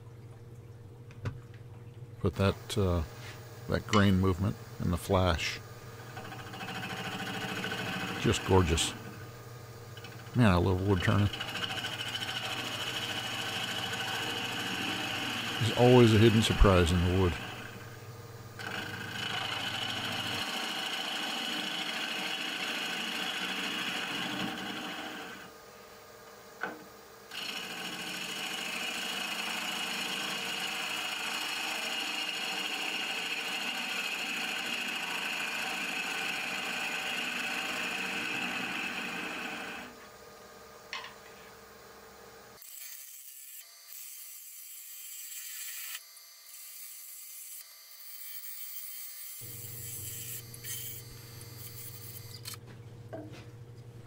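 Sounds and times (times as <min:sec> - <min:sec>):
lathe gouge cutting wood: 0:05.4 - 0:09.3, 0:10.0 - 0:17.8, 0:18.6 - 0:25.5, 0:27.3 - 0:39.9, 0:45.1 - 0:52.6.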